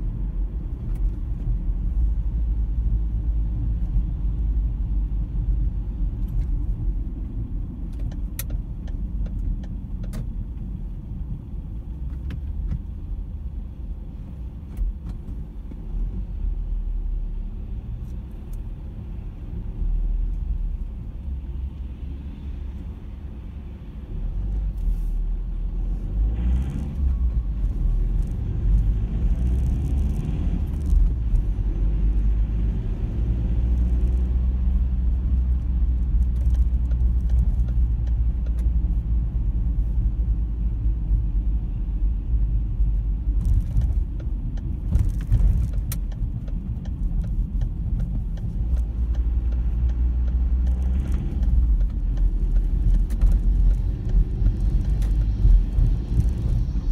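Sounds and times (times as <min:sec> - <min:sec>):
road and engine rumble: 0:00.0 - 0:56.9
light rattles and clicks: 0:34.0 - 0:39.0, 0:42.8 - 0:56.9.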